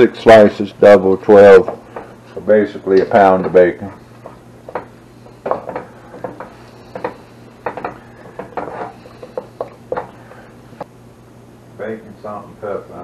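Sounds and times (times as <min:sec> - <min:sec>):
wooden spatula scraping a pot: 0:05.4 - 0:10.1.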